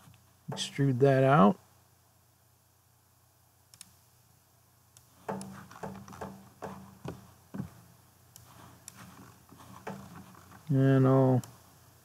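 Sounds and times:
soft clicks: 3.7 - 4.0, 8.3 - 9.2.

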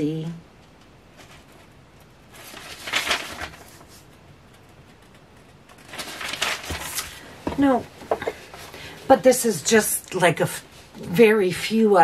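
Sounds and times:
paper sheets rustling: 1.2 - 4.2, 5.7 - 8.9.

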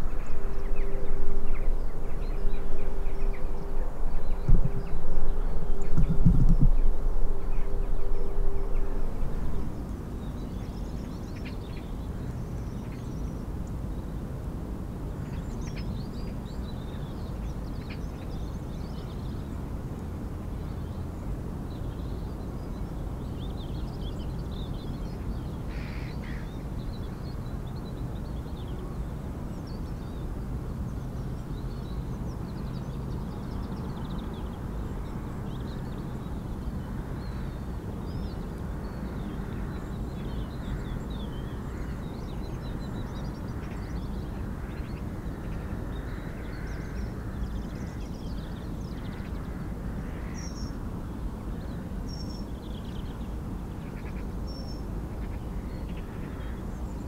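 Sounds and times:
birds chirping: 0.0 - 10.9
steady low rumble: 0.0 - 11.4.

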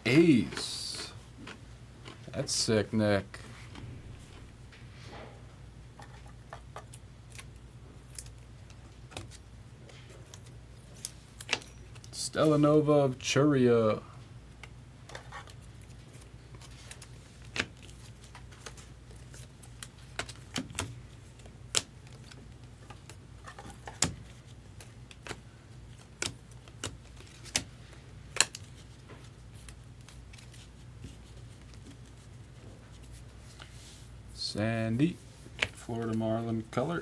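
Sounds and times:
low steady hum: 0.0 - 37.0
trading cards clicking and snapping: 16.6 - 30.6.

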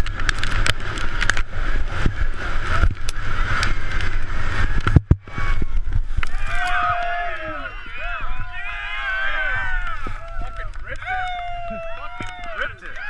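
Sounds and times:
skis clicking and knocking: 0.0 - 7.4, 9.3 - 13.0
wind on microphone: 0.0 - 13.0.

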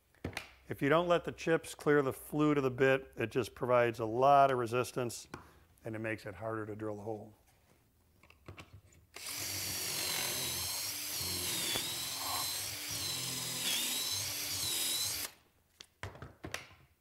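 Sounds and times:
cordless drill whining: 9.2 - 15.4.

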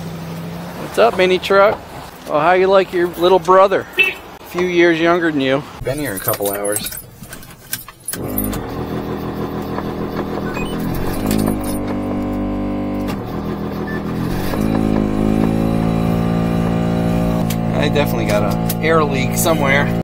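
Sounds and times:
truck engine starting and idling: 5.7 - 20.0
keys jingling: 5.8 - 9.1, 10.7 - 12.0
engine throttle blips: 8.1 - 20.0.

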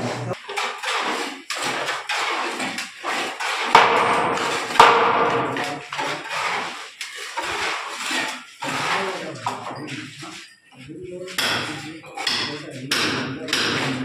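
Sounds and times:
hammer strikes on wood: 3.7 - 6.1, 11.4 - 14.0.

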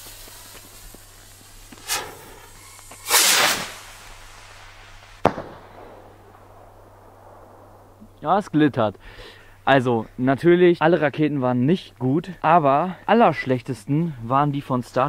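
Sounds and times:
firework rocket whoosh: 0.0 - 7.2
firework bursting crack: 0.0 - 8.2.

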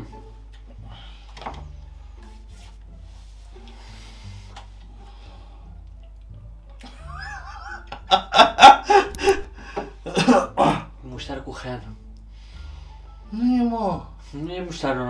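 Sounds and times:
man laughing hard: 6.8 - 10.5.

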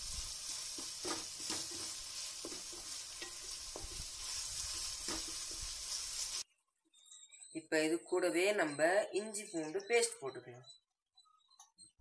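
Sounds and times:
onions sizzling in oil: 0.0 - 6.4
wooden spatula scraping pot: 0.6 - 6.4.

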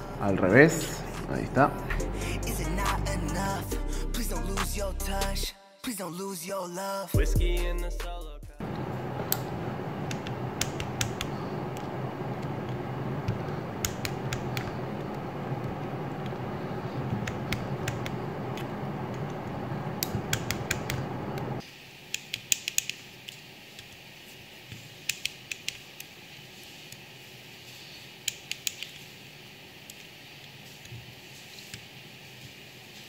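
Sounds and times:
steady background noise: 8.6 - 21.8.

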